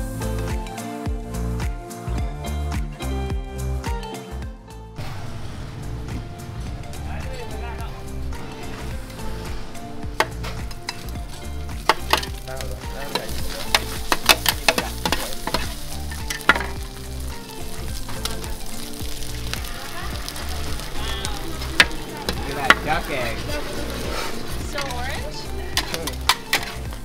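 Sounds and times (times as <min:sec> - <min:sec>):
food sizzling in a wok: 0:06.4 - 0:27.0
metal spatulas scraping a wok: 0:08.3 - 0:16.8, 0:20.3 - 0:26.8.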